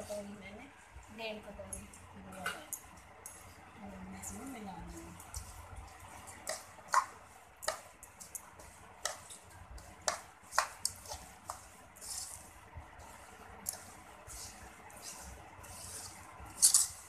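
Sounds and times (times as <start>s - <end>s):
spoon scraping metal pan: 13.6s - 17.0s.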